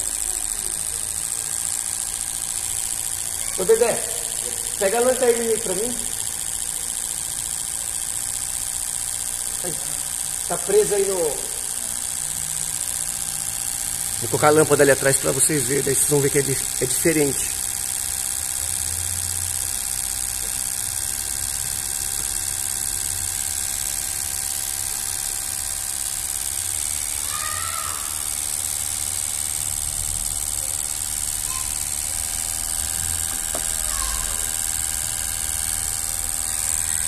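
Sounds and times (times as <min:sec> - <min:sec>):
injectors spraying fluid hiss: 0:00.0 - 0:37.0
pump motor humming: 0:00.0 - 0:37.0.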